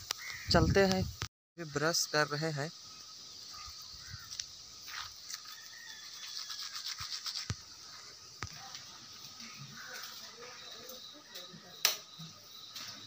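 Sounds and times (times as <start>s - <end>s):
toothbrush scrubbing teeth: 5.3s - 7.6s.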